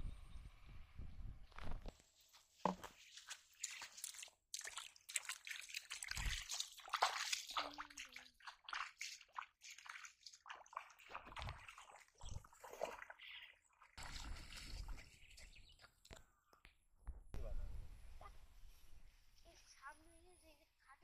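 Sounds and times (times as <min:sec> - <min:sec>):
feet splashing in shallow water: 0:02.7 - 0:15.6.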